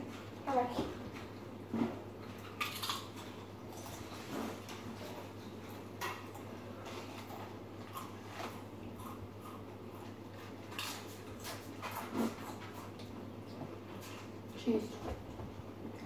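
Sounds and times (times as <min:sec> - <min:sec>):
chip crunching: 0:02.4 - 0:04.1, 0:07.2 - 0:13.0.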